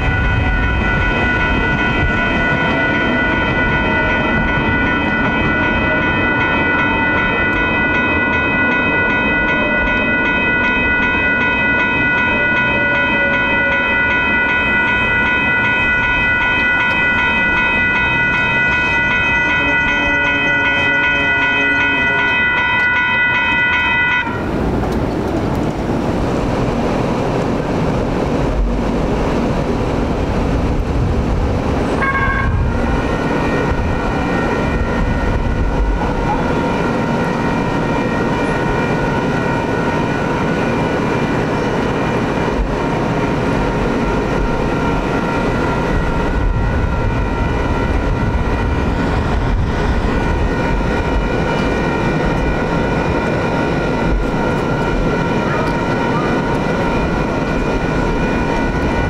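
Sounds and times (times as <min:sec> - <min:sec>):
traffic noise: 0:00.0 - 0:59.0
train traction motors whining: 0:00.0 - 0:59.0
steady high-pitched tone: 0:31.8 - 0:59.0.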